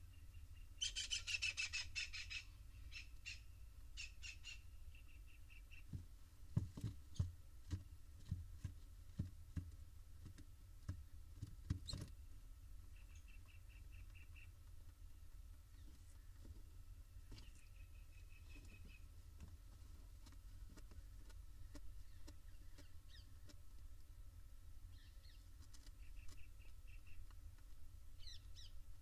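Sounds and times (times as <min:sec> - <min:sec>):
owl chicks chittering: 0:00.1 - 0:06.0, 0:12.9 - 0:14.7, 0:24.9 - 0:27.4.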